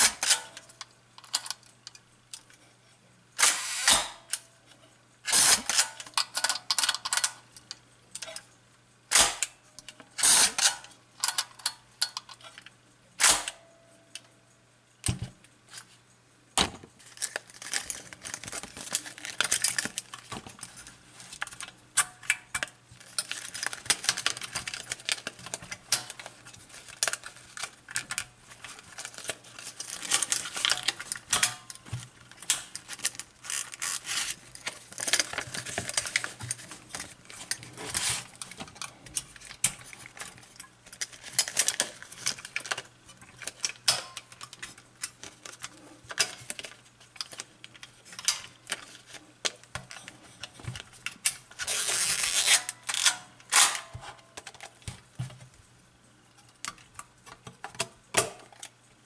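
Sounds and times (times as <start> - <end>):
paper rustling and crinkling: 17.0 - 21.8, 23.0 - 52.8.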